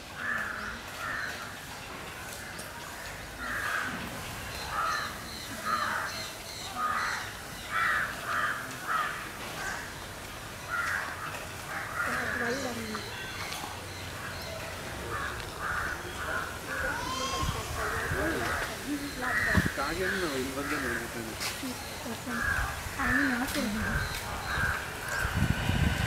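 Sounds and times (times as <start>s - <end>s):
crows cawing: 0.2s - 1.5s, 3.4s - 4.0s, 4.6s - 10.0s, 10.6s - 14.4s, 15.0s - 21.4s, 22.2s - 25.4s.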